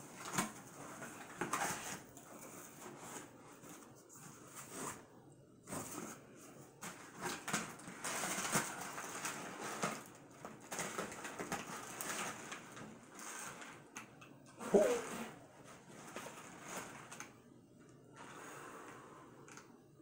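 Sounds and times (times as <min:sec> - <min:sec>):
packing paper rustling: 0:00.0 - 0:06.2, 0:06.8 - 0:13.9, 0:14.6 - 0:17.4.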